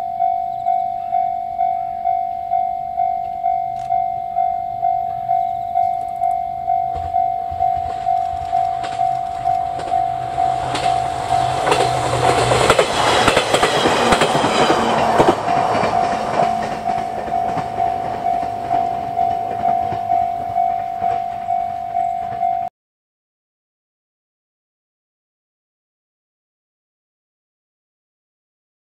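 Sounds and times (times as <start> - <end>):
level crossing bell ringing: 0.0 - 12.8, 14.4 - 22.7
train wheels clacking: 5.1 - 22.5.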